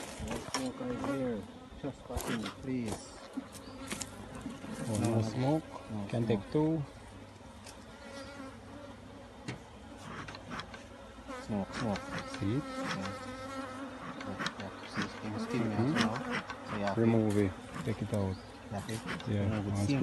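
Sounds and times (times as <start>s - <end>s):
bees buzzing around hive: 0.0s - 20.0s
bee flying close past: 7.8s - 20.0s.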